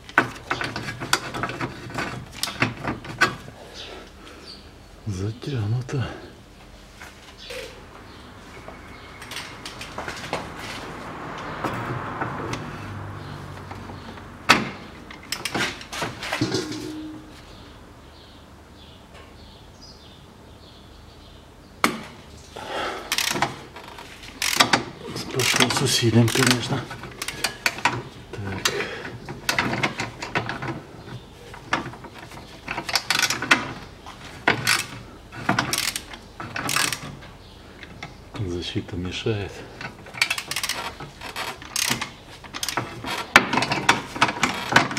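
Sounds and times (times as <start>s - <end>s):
ratchet wrench clicking: 23.1s - 23.4s, 24.4s - 24.8s, 35.7s - 36.1s, 40.2s - 40.9s.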